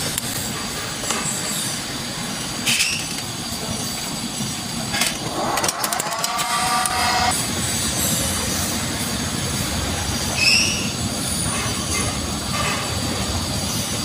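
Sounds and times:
lathe running: 0:03.6 - 0:07.8
high metallic squeal: 0:05.4 - 0:07.4, 0:10.3 - 0:11.8.

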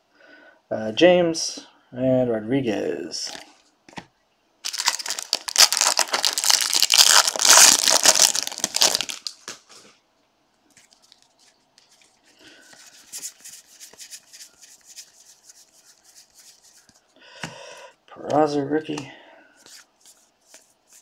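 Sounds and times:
foil wrapper tearing and crinkling: 0:04.6 - 0:09.6
cards rustling and flicking: 0:04.7 - 0:09.9, 0:10.7 - 0:17.0, 0:19.0 - 0:21.0.

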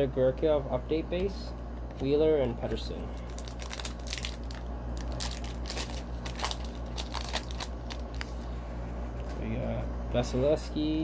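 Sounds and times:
steady low hum: 0:00.0 - 0:11.0
trading cards crinkling and clicking: 0:02.0 - 0:08.5.

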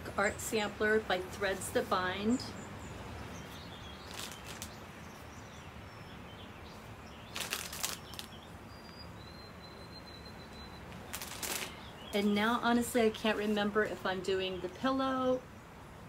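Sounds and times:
outdoor background hiss: 0:00.0 - 0:16.0
faint high bird chirps: 0:02.4 - 0:12.4
package rustling: 0:04.0 - 0:04.8, 0:07.3 - 0:08.3, 0:11.1 - 0:11.8.

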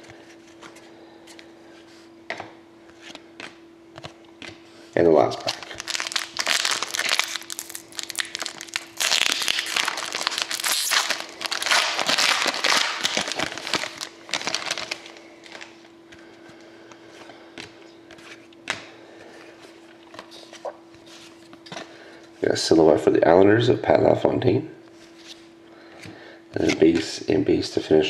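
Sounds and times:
foil wrapper crinkling and tearing: 0:05.3 - 0:15.8.

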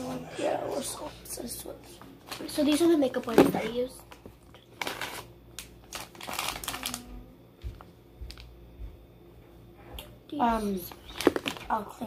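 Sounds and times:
plastic wipes pack crinkling: 0:02.2 - 0:08.5, 0:10.9 - 0:12.0.

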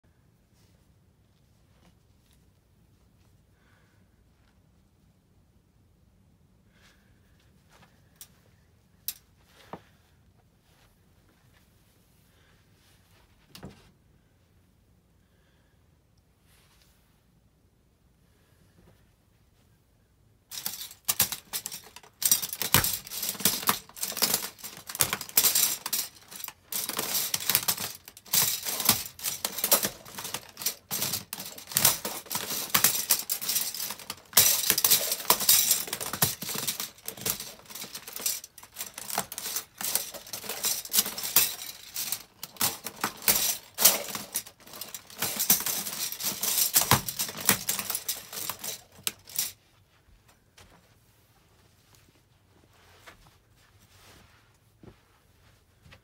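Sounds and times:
plastic cutlery cracking underfoot: 0:20.5 - 0:49.6.

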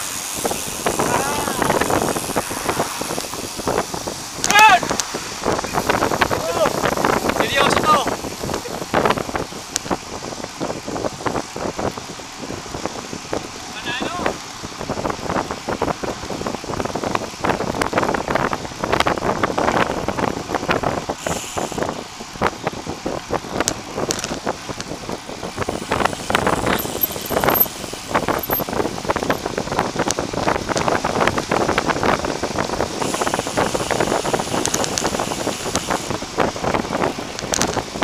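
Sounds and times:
bicycle rattling and knocking: 0:00.0 - 0:02.5, 0:22.3 - 0:38.0
bicycle tyres on asphalt: 0:00.0 - 0:38.0
wind rushing over microphone: 0:00.0 - 0:38.0.

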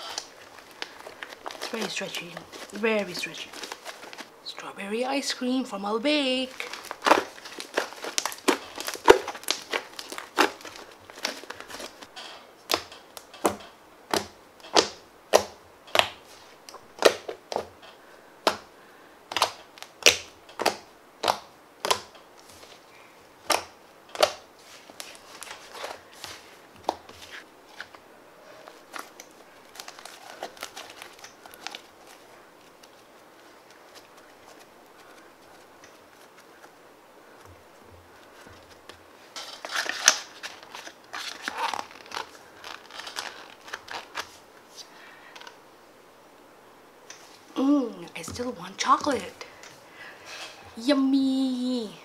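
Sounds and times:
slime squishing crackle: 0:00.0 - 0:04.3, 0:06.3 - 0:12.1, 0:28.6 - 0:36.4, 0:38.8 - 0:44.4.

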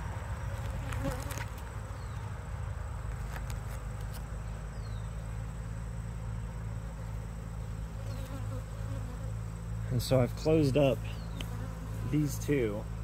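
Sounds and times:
bees buzzing: 0:06.2 - 0:09.8, 0:10.4 - 0:13.0.

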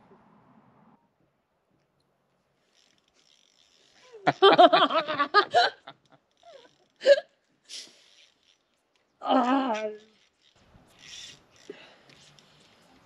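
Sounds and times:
person laughing: 0:04.1 - 0:07.2.

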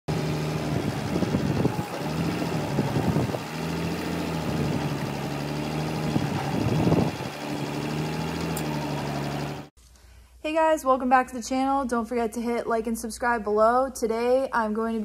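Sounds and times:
forklift engine running: 0:00.1 - 0:09.7.

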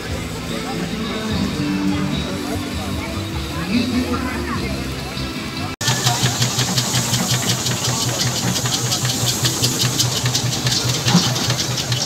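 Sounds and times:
steam engine ticking over: 0:00.0 - 0:12.0.

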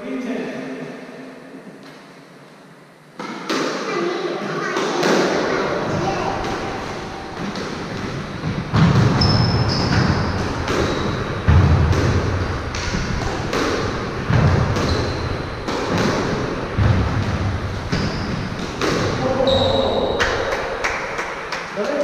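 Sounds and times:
shoes squeaking on wooden floor: 0:05.9 - 0:11.5
squash ball thudding off walls: 0:06.3 - 0:19.2.

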